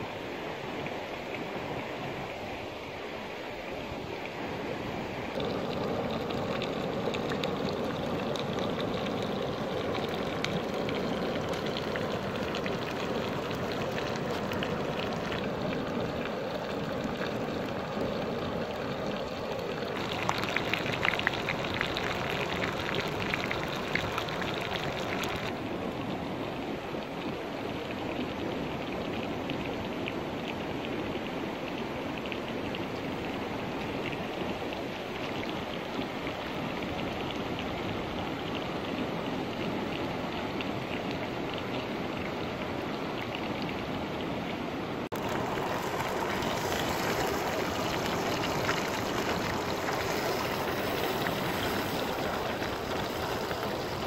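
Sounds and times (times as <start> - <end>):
fast river rushing: 44.3 - 54.0.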